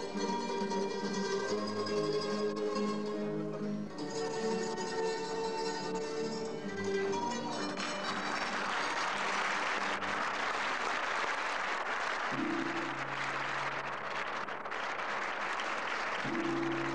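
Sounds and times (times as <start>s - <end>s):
audience applauding: 7.2s - 16.9s.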